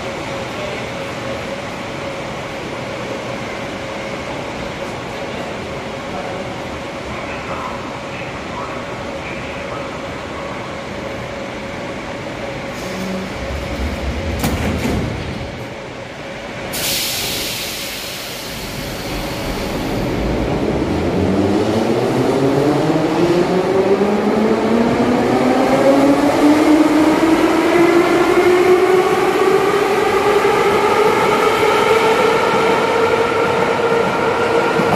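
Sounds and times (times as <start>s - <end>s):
sudden hiss: 16.7s - 20.0s.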